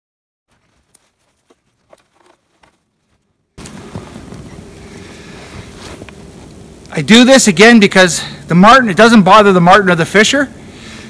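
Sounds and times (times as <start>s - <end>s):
spruce boughs rustling: 0.5s - 6.9s.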